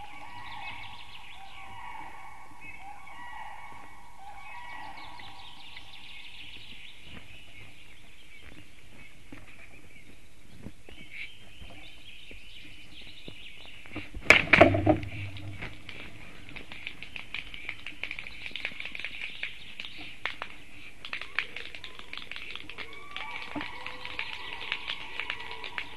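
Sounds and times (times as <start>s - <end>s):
songbirds chirping: 0.0s - 25.9s
stork wings flapping: 14.3s - 25.9s.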